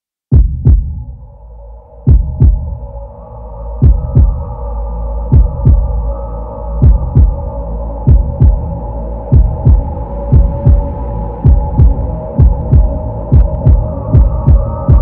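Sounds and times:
heartbeat double thump: 0:00.3 - 0:01.0, 0:02.1 - 0:02.8, 0:03.8 - 0:04.5, 0:05.3 - 0:05.9, 0:06.8 - 0:07.4, 0:08.1 - 0:08.7, 0:09.3 - 0:15.0
droning hum: 0:00.9 - 0:15.0.

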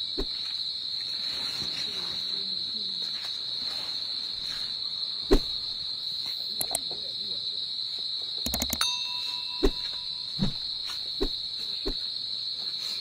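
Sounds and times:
night insects chirping: 0:00.0 - 0:13.0.

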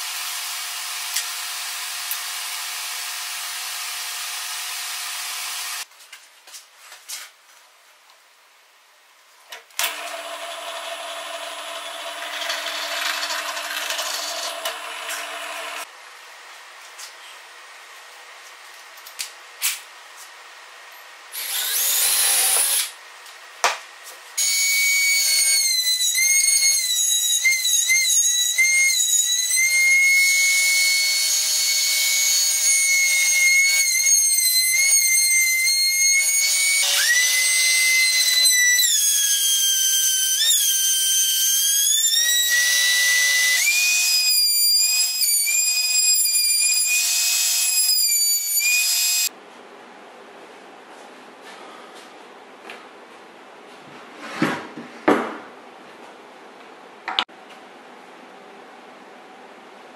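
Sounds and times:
power saw cutting wood: 0:00.0 - 0:05.9, 0:09.8 - 0:15.9, 0:21.3 - 0:23.0, 0:24.4 - 0:49.3.

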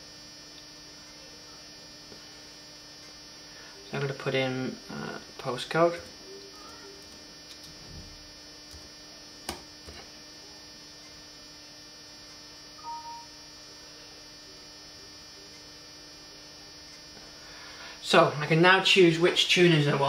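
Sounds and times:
electrical mains hum: 0:00.0 - 0:20.0
two-note electronic tone: 0:12.8 - 0:13.4.

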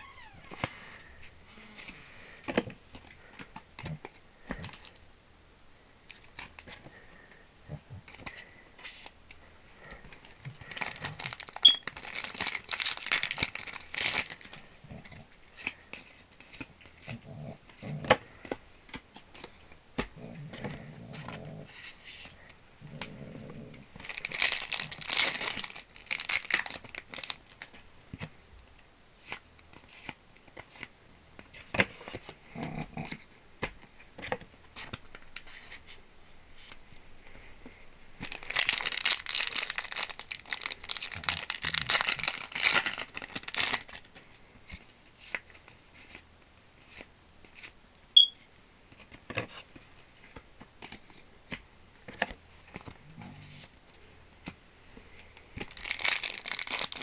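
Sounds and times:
foil wrappers crinkling and tearing: 0:10.1 - 0:18.6, 0:23.9 - 0:28.3, 0:38.2 - 0:46.2, 0:55.2 - 0:57.0.

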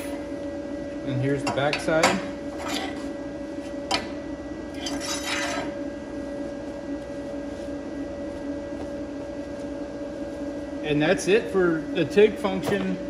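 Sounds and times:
steady hum: 0:00.0 - 0:13.0
steel scraping on table: 0:02.5 - 0:03.1, 0:04.8 - 0:05.8.

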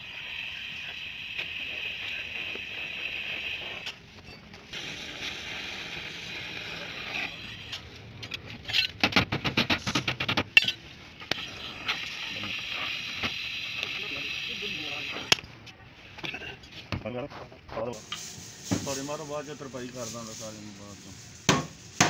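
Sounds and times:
gas welding torch hissing: 0:00.0 - 0:04.0, 0:04.7 - 0:07.9, 0:11.2 - 0:15.4, 0:18.0 - 0:22.0.

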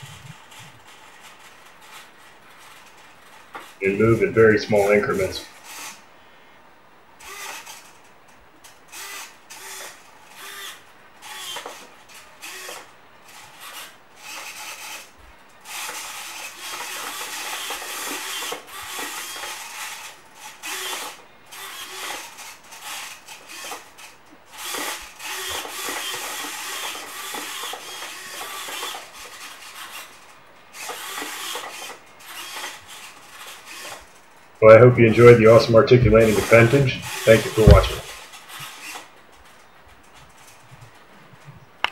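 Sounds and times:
servo motors whirring: 0:03.5 - 0:06.0, 0:07.2 - 0:08.0, 0:08.8 - 0:34.3, 0:35.2 - 0:39.2.

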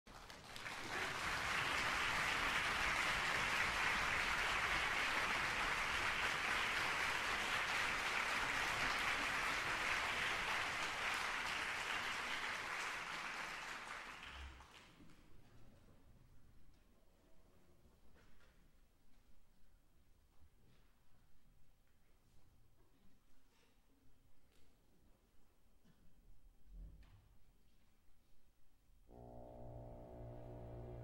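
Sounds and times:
audience applauding: 0:00.1 - 0:14.9.

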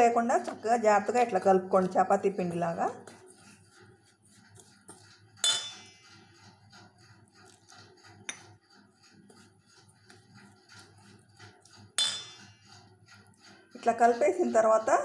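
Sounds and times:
spoon scraping flour in bowl: 0:00.0 - 0:15.0
metal bowl clink: 0:05.4 - 0:06.0, 0:12.0 - 0:12.5.

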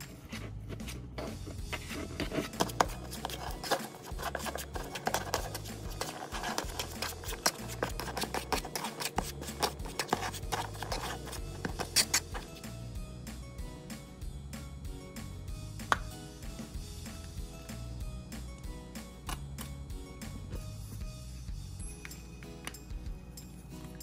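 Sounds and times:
fork scraping plastic bowl: 0:00.0 - 0:12.6
low background music: 0:00.0 - 0:24.0.

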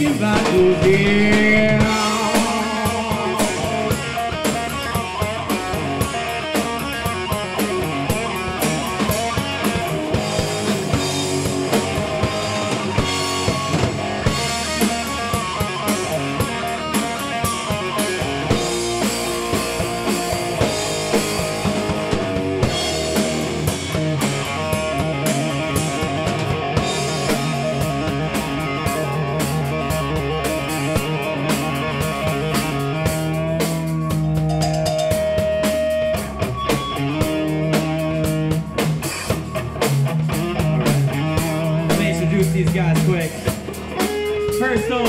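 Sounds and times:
bass guitar: 0:00.0 - 0:45.0
drum kit and cymbals: 0:00.0 - 0:45.0
electric guitar: 0:00.0 - 0:45.0.

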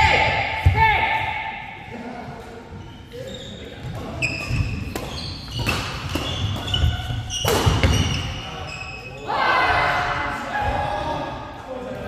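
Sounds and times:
shoes squeaking on court: 0:02.7 - 0:09.2
rackets striking shuttlecock: 0:04.4 - 0:08.0.

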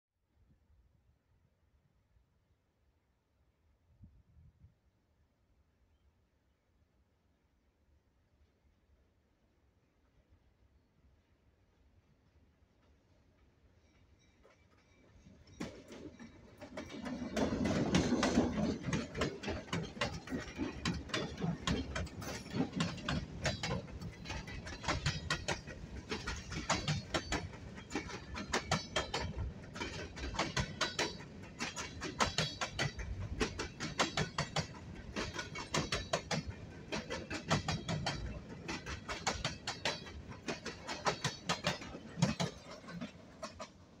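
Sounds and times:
train wheels clattering on rails: 0:14.0 - 0:44.0
train rumble: 0:15.5 - 0:44.0.

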